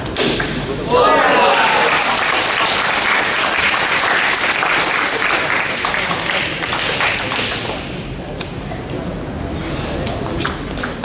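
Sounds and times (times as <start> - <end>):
spectators clapping: 1.0 - 8.0.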